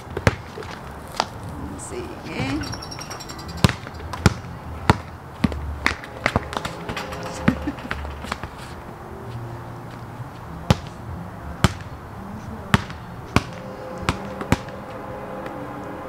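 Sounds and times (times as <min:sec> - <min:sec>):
basketball bouncing on concrete: 0:03.6 - 0:06.7, 0:10.7 - 0:10.9, 0:11.6 - 0:11.9, 0:12.7 - 0:14.6.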